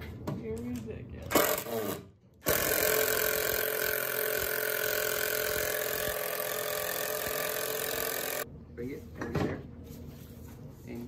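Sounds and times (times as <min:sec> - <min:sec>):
cordless drill whining: 0:02.4 - 0:08.4.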